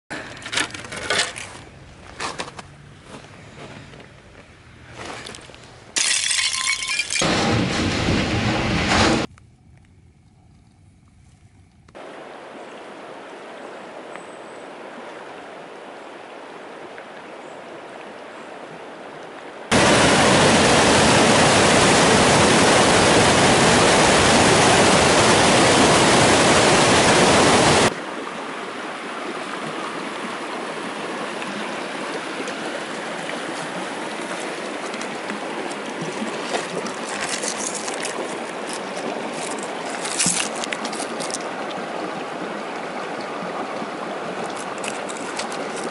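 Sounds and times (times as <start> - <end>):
stream water flowing: 12.0 - 45.9
whitewater rapids rushing: 19.7 - 45.9
wet pebbles clicking: 34.8 - 41.6, 44.4 - 45.9.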